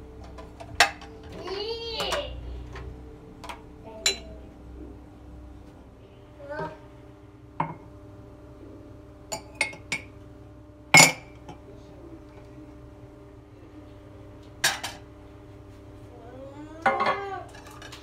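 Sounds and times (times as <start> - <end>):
mugs clinking on countertop: 0.4 - 1.3, 3.4 - 4.3, 7.6 - 7.9, 9.3 - 10.2, 10.9 - 11.6, 14.6 - 15.1, 16.8 - 18.0.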